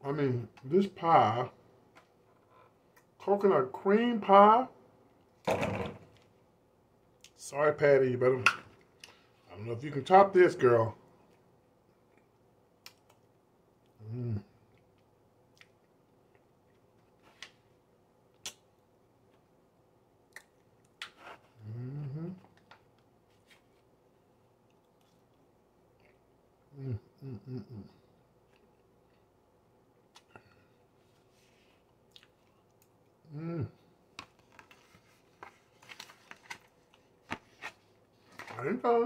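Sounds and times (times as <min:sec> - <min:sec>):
man humming: 0:14.0 - 0:14.5, 0:21.6 - 0:22.5, 0:26.7 - 0:28.0, 0:33.3 - 0:33.8
man chewing: 0:14.7 - 0:17.3, 0:24.6 - 0:26.3, 0:31.8 - 0:33.2.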